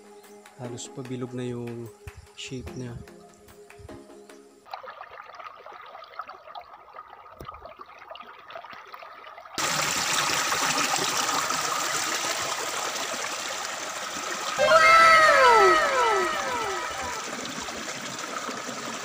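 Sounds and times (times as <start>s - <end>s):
stream water rushing over rocks: 9.6s - 19.0s.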